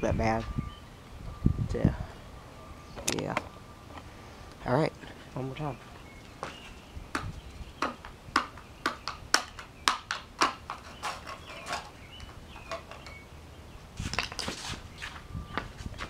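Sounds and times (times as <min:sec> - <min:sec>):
short scuffing noise: 0:14.0 - 0:16.0.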